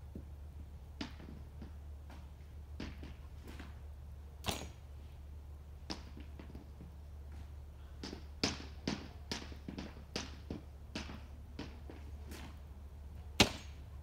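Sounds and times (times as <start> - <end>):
hockey stick tapping puck: 1.0 - 1.8, 8.0 - 12.1.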